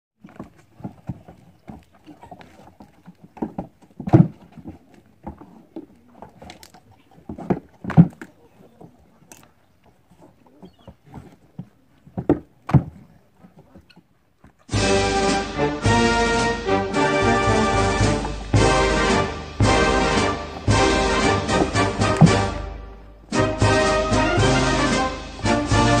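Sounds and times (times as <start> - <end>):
goat hooves knocking on wooden planks: 0.2 - 6.6, 19.7 - 22.6.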